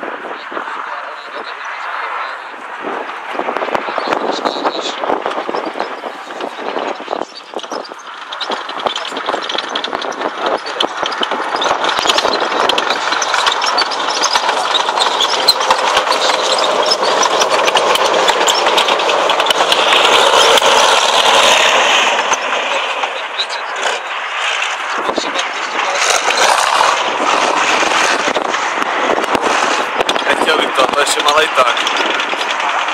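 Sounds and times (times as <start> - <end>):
tank diesel engine running: 0.8 - 32.9
steel tracks clattering: 8.0 - 23.2.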